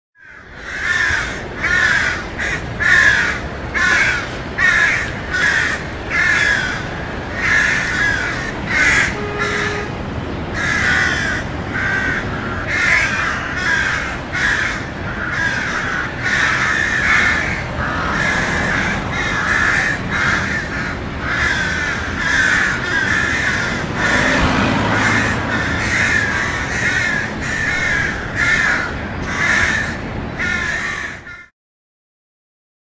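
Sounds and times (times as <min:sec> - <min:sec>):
city ambience: 0:00.2 - 0:31.5
crows cawing: 0:00.2 - 0:31.5.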